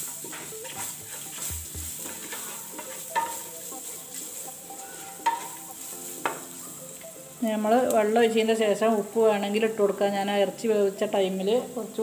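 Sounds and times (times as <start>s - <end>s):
wooden spoon stirring in pot: 0.0s - 8.3s
food sizzling in oil: 0.0s - 12.0s
spoon knocking against pot: 1.3s - 3.4s, 5.2s - 5.6s.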